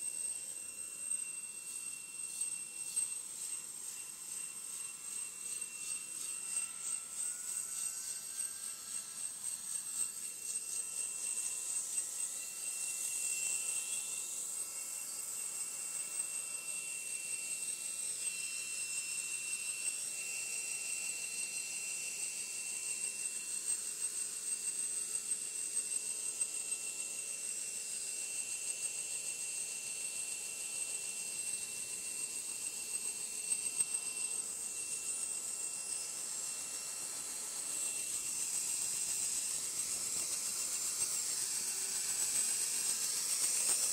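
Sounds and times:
helicopter turbine whine: 0:00.0 - 0:26.0, 0:27.7 - 0:43.9
hiss: 0:36.0 - 0:43.9.

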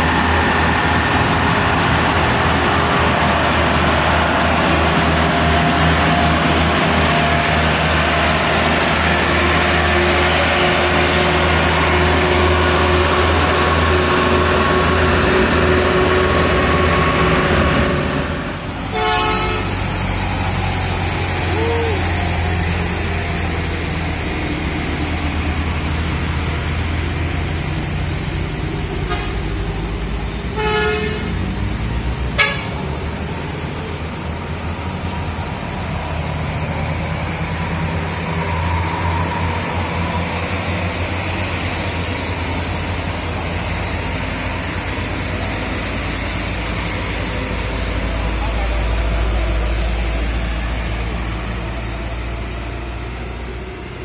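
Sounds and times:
diesel truck engine labouring: 0:00.0 - 0:54.0
vehicle horn toots: 0:18.9 - 0:19.8, 0:30.6 - 0:31.4, 0:32.4 - 0:32.8.

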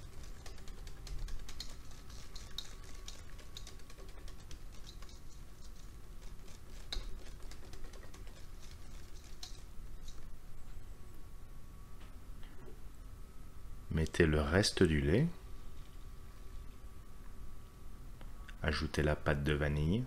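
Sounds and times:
whisk clicking against metal bowl: 0:00.0 - 0:10.3.

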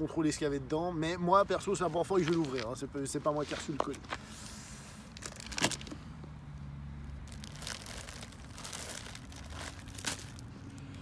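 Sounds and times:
plastic packing rustling: 0:05.1 - 0:06.0, 0:07.2 - 0:10.8.

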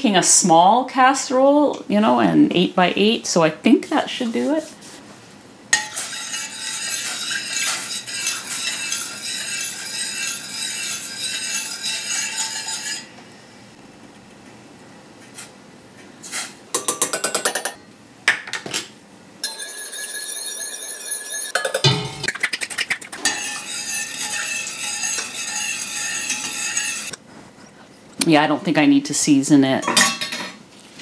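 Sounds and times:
whisk scraping a saucepan: 0:05.8 - 0:13.2, 0:19.4 - 0:27.2.

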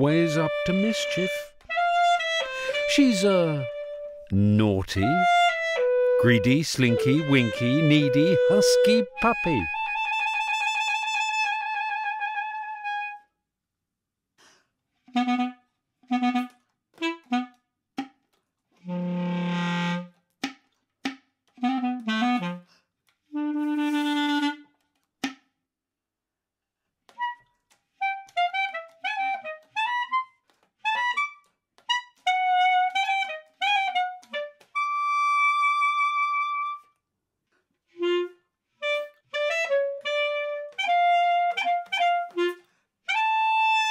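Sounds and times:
basset horn playing: 0:00.0 - 0:04.3, 0:05.0 - 0:10.7, 0:23.4 - 0:24.6.

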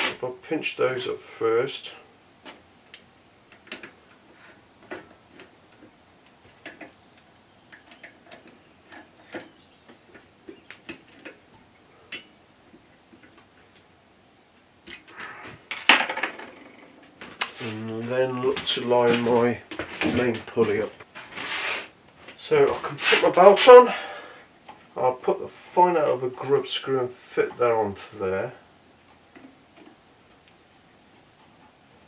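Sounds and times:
handling noise: 0:02.4 - 0:23.8
small metallic clicks: 0:04.9 - 0:13.9.

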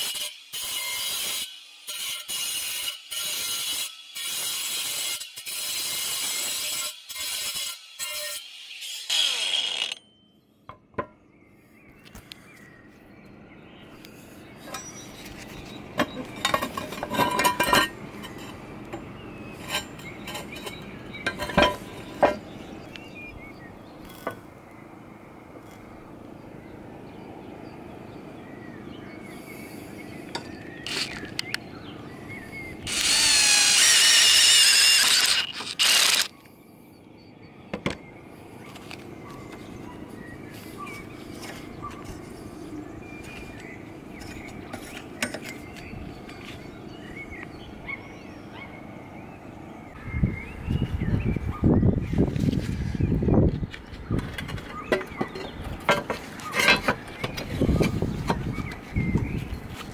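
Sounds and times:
cordless power tool whine: 0:07.9 - 0:10.1, 0:30.9 - 0:31.5, 0:32.9 - 0:36.3
metal hooks clinking on roof tiles: 0:16.0 - 0:22.5, 0:54.2 - 0:58.5.

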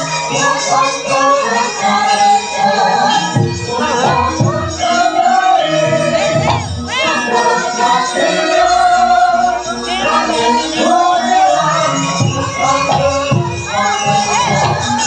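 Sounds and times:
gamelan ensemble music: 0:00.0 - 0:15.0.

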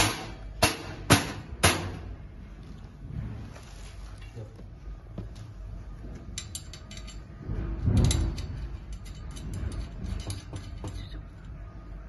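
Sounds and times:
metal frame clicking and rattling: 0:06.2 - 0:11.4.

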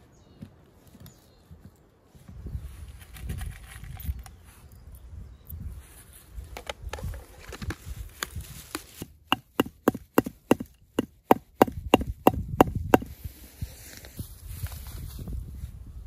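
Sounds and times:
hatchet hammering on stone: 0:09.3 - 0:13.1.

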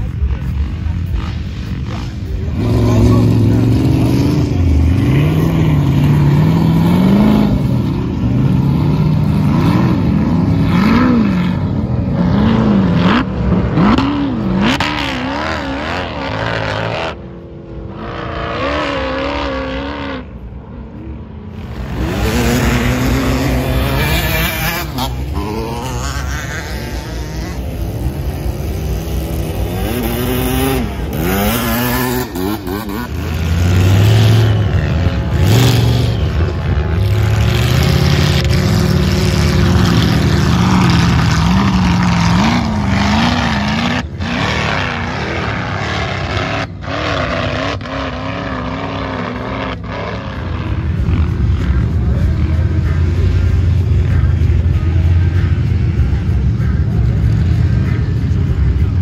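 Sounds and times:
dirt bike engine: 0:00.0 - 0:59.0
off-road vehicle engines revving: 0:00.0 - 0:59.0.

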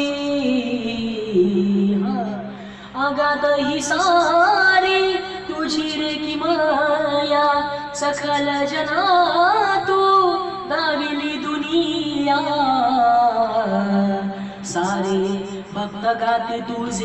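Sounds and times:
man singing into microphone: 0:14.7 - 0:17.0.

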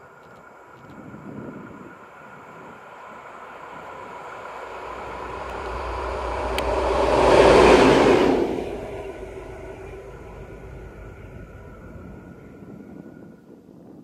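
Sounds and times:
diesel locomotive passing: 0:00.0 - 0:13.6.

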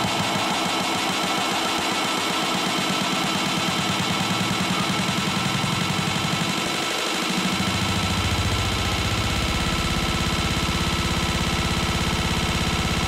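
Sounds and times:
buzzing synth bass pulse: 0:07.2 - 0:13.0.

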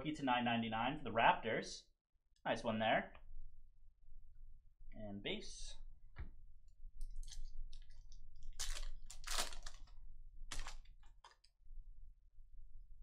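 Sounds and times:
foil wrapper crinkling and tearing: 0:07.2 - 0:11.5.

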